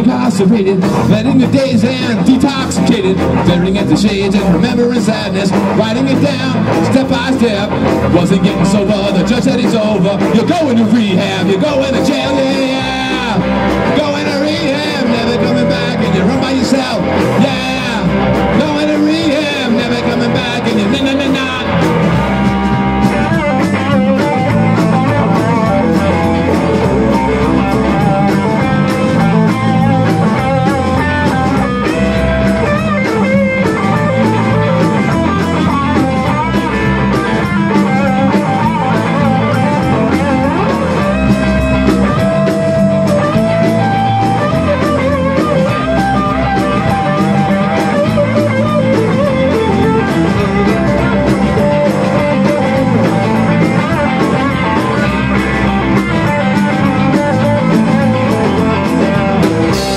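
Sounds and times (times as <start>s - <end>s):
rock band playing: 0.0s - 59.9s.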